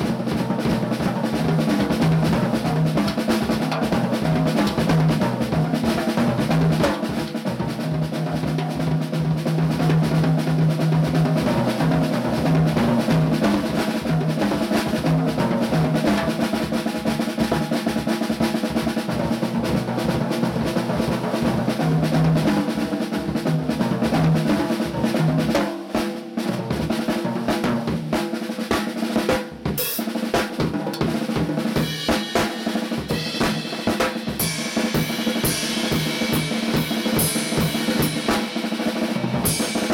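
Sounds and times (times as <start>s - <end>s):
drum solo on snare and toms: 0.0s - 39.9s
cymbals: 10.7s - 27.3s, 28.0s - 39.9s.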